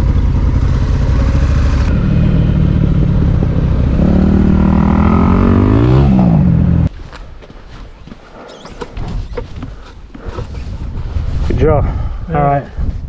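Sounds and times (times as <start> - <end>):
motorcycle engine revving: 0.0 - 6.9.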